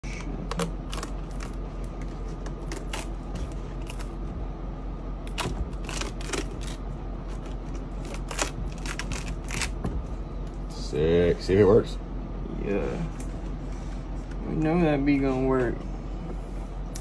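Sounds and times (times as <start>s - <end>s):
steady background hum: 0.0s - 17.0s
plastic backing strips peeling: 0.4s - 4.2s, 5.3s - 9.8s.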